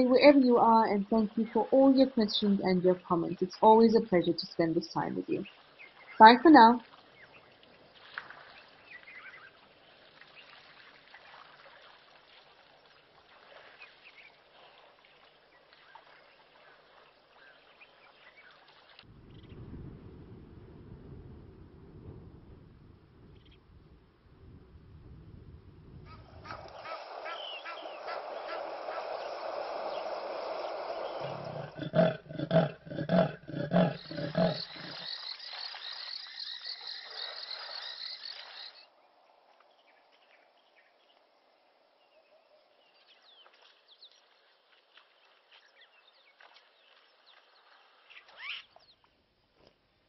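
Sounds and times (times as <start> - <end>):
faint chirps: 26.8 - 39.0
hippopotamus grunting: 31.0 - 35.1
high even chirring: 31.1 - 38.8.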